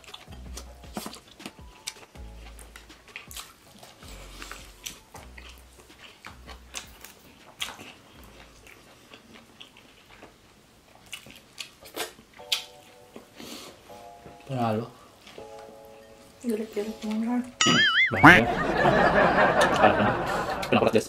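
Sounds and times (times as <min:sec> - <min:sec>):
chewing and biting: 0:00.0 - 0:13.8.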